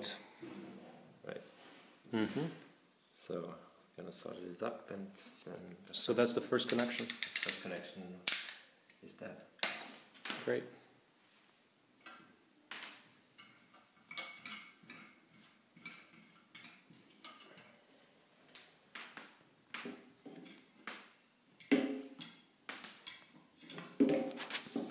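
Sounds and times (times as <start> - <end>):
cables and plugs clicking: 6.6 - 7.7.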